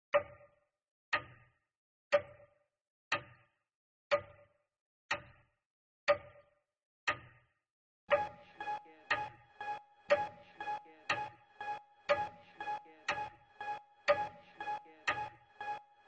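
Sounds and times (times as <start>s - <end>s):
clock ticking: 2.1s - 2.5s, 3.1s - 3.4s, 4.1s - 4.5s, 5.1s - 5.4s, 6.1s - 6.4s, 8.1s - 16.0s.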